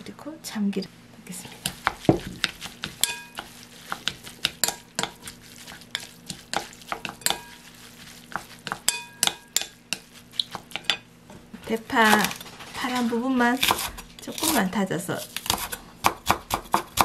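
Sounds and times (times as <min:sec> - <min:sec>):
wooden spoon tapping glass bowl: 0:01.8 - 0:05.3, 0:05.9 - 0:07.7, 0:08.3 - 0:11.0
glass bowl ringing: 0:03.0 - 0:03.4, 0:08.9 - 0:09.7.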